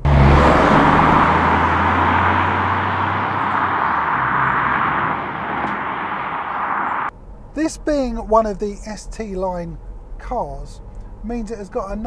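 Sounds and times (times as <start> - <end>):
car driving past: 0.0 - 7.1.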